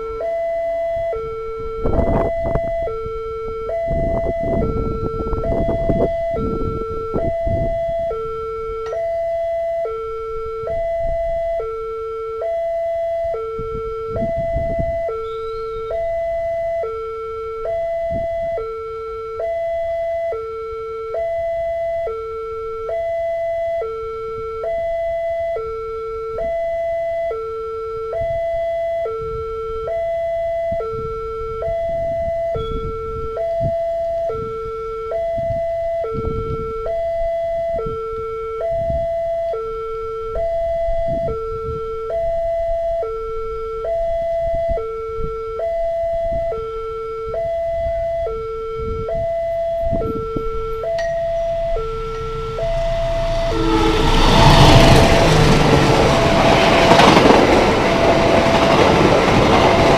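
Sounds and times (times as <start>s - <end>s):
two-tone level crossing alarm: 0.0s - 59.9s
low rumble: 50.2s - 59.9s.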